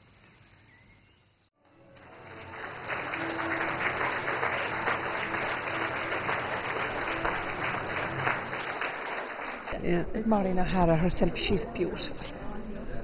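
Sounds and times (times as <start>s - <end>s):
audience applauding: 1.6s - 9.8s.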